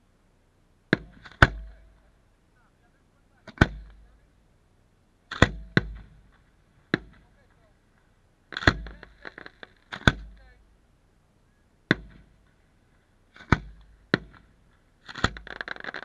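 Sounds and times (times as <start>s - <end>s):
firework crackling: 8.5s - 10.1s, 15.0s - 16.0s
firework shells bursting: 8.5s - 10.4s, 13.3s - 16.0s.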